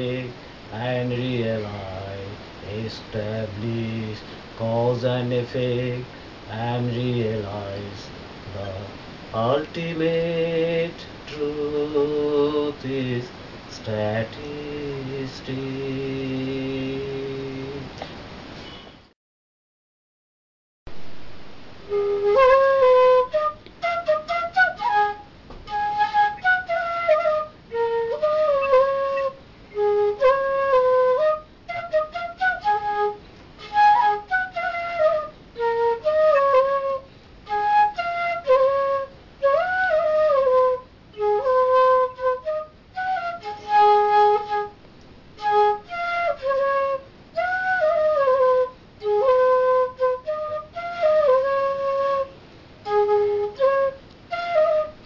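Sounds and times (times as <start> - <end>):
bamboo flute melody: 21.8 - 44.8, 45.4 - 55.0.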